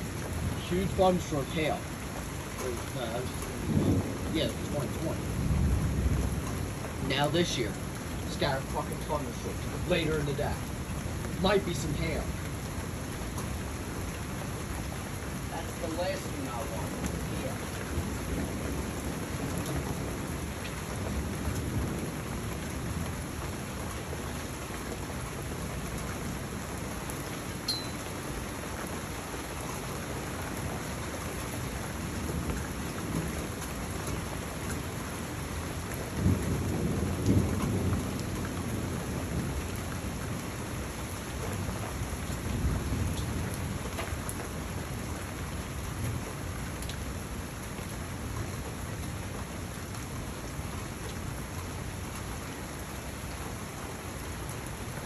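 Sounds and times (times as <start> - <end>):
steady rain falling: 0.0 - 55.0
rolling thunder: 2.6 - 9.0, 15.2 - 24.2, 31.9 - 40.7.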